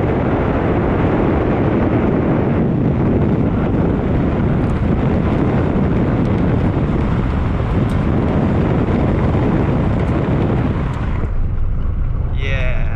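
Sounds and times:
wind buffeting microphone: 0.0s - 12.9s.

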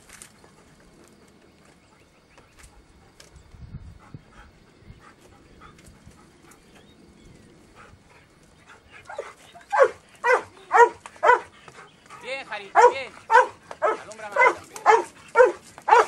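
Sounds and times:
dog barking: 9.1s - 11.5s, 12.6s - 16.0s.

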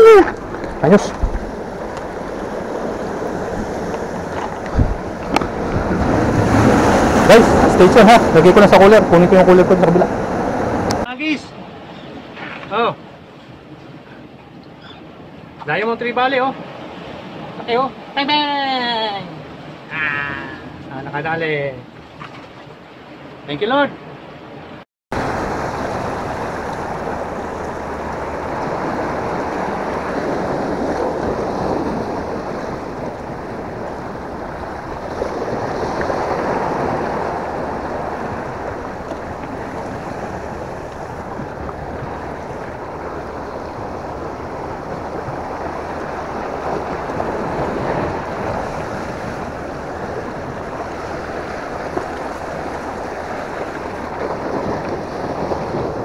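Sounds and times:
wind buffeting microphone: 0.0s - 11.1s, 25.1s - 56.0s
waves breaking on rocks: 0.0s - 13.0s, 25.1s - 56.0s.

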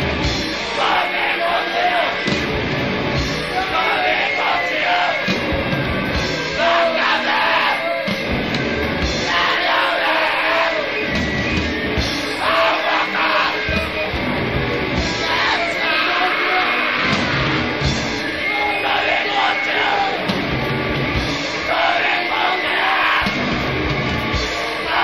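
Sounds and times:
bass guitar: 0.0s - 25.0s
distorted guitar: 0.0s - 25.0s
drums: 0.0s - 25.0s
shouted vocals: 0.5s - 2.4s, 3.4s - 5.5s, 6.4s - 8.2s, 9.1s - 14.2s, 15.0s - 20.5s, 21.4s - 23.6s, 24.2s - 25.0s.

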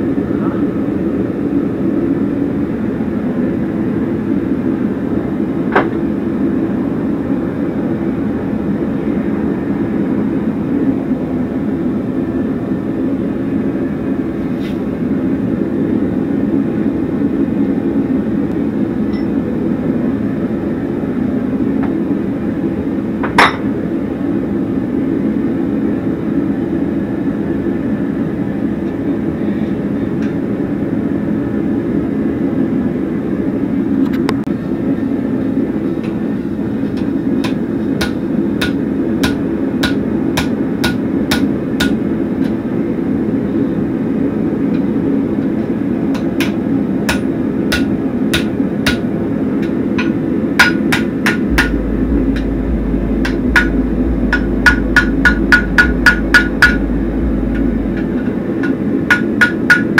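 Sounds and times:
forge roaring: 50.0s - 59.9s.

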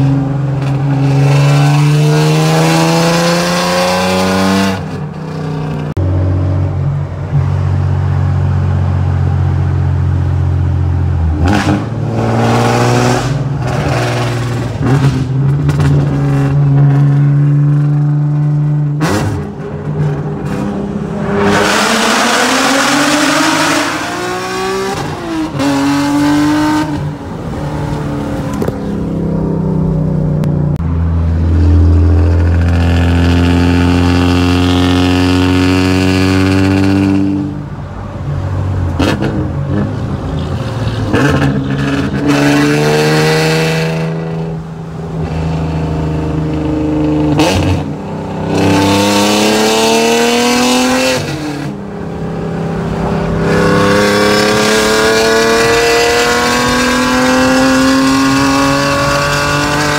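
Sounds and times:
car engine revving under acceleration: 0.0s - 7.5s, 10.3s - 29.2s, 41.1s - 59.9s.

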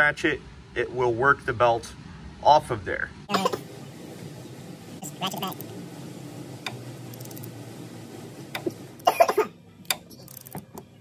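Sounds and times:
steady low hum: 0.0s - 11.0s
loud cough: 9.0s - 9.5s.

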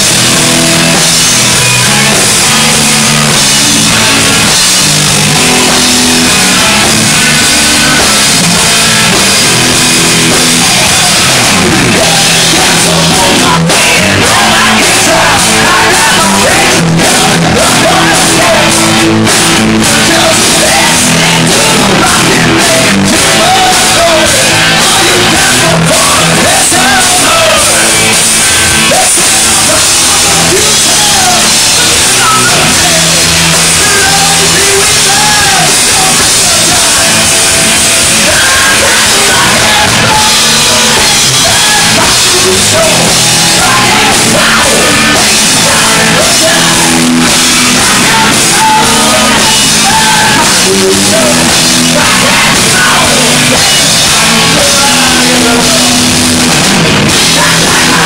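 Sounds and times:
live hard rock band: 0.0s - 58.0s
man singing: 0.0s - 58.0s.

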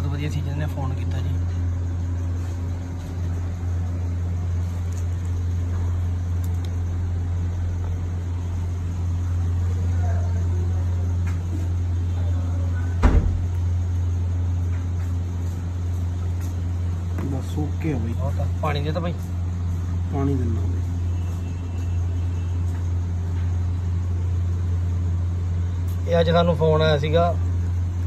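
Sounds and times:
low mechanical hum: 0.0s - 28.0s
thump: 13.0s - 13.5s.

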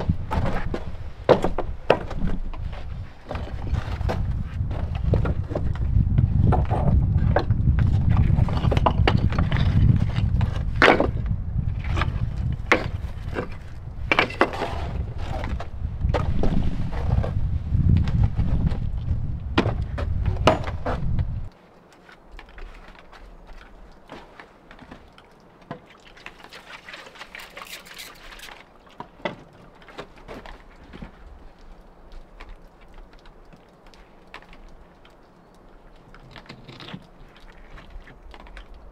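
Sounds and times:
wind rumble on microphone: 0.0s - 21.5s
stones knocking together: 18.0s - 21.3s.

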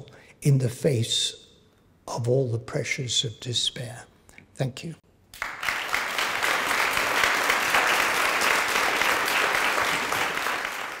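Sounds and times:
large audience applauding: 5.3s - 11.0s.

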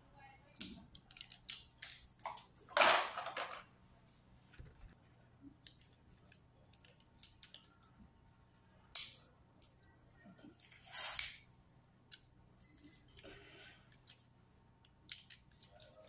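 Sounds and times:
tools clattering into plastic tray: 1.9s - 3.7s.

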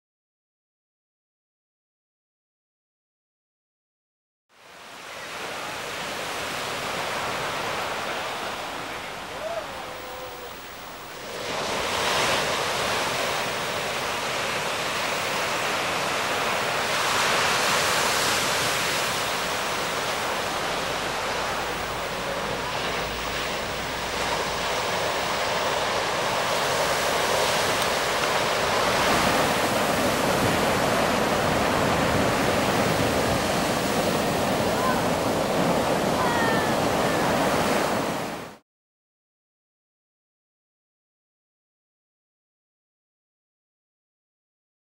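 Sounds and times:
surf breaking on shore: 4.7s - 38.6s.

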